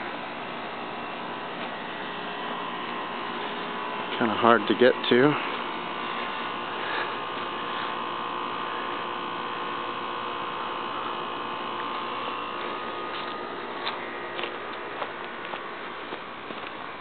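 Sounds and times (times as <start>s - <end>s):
high even whine: 0.0s - 17.0s
steady hum: 0.0s - 17.0s.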